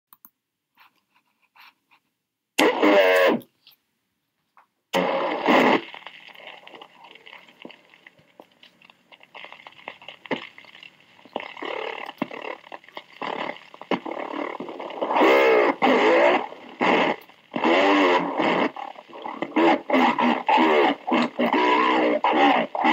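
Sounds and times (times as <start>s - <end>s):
radio channel hiss: 2.6s - 3.4s, 4.9s - 22.9s
slowed distorted radio transmission: 2.6s - 3.5s, 4.9s - 22.9s
radio clicks: 4.9s - 22.9s.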